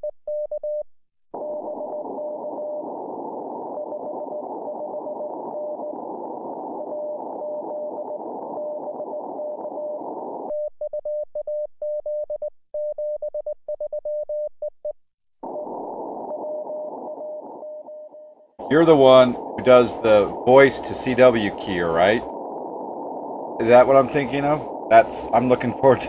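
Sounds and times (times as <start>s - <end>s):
radio receiver hiss: 1.4s - 10.5s, 15.4s - 18.0s, 18.6s - 26.0s.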